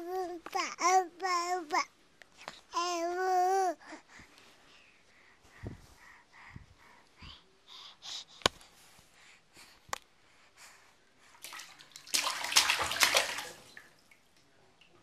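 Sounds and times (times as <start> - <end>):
soft baby sounds: 0.0 - 11.4
baby splashing bathwater: 11.3 - 15.0.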